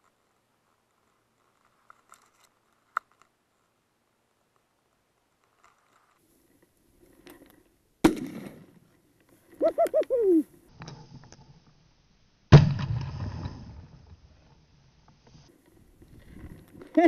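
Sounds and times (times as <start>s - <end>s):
loud shotgun shot: 8.0s - 8.7s, 12.5s - 13.7s
sharp crack: 8.0s - 8.9s, 12.5s - 14.0s
pheasant cackling: 9.6s - 10.5s.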